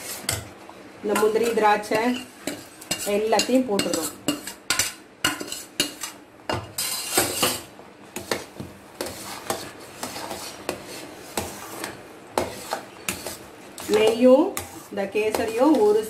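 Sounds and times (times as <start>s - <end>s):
metal spoon scraping a metal pan: 0.0s - 0.5s, 1.1s - 16.0s.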